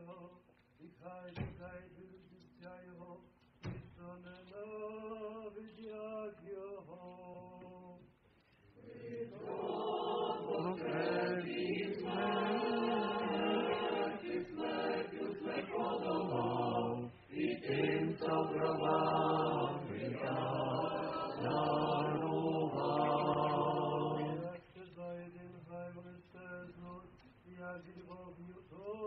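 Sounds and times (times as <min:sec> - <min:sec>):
choir chanting: 0:08.8 - 0:25.9.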